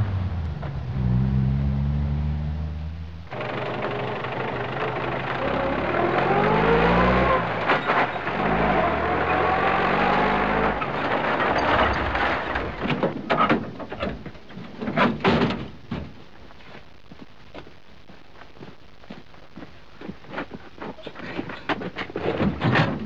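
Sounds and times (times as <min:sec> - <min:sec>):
passing cars: 0:00.0 - 0:11.2
vehicle accelerating: 0:00.0 - 0:12.0
sharp knocks and clatter: 0:07.5 - 0:08.6, 0:10.7 - 0:16.2, 0:21.4 - 0:23.0.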